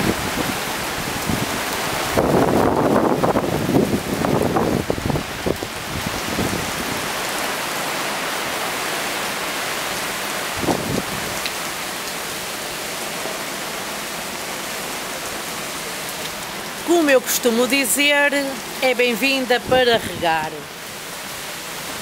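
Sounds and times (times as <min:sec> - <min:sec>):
wind buffeting microphone: 0:00.0 - 0:07.1, 0:10.5 - 0:11.4
rain falling on pavement and awning: 0:00.0 - 0:22.0.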